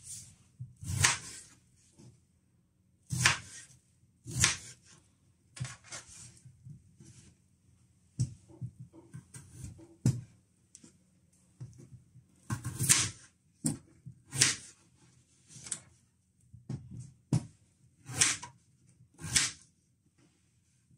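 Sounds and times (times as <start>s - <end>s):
knife slicing through potato: 0.0s - 1.6s, 3.1s - 5.0s, 12.4s - 14.8s, 18.0s - 18.5s, 19.2s - 19.7s.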